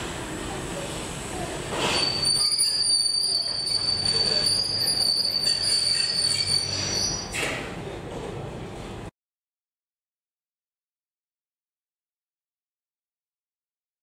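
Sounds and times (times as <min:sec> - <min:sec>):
train wheels squealing on rails: 0:01.7 - 0:07.8.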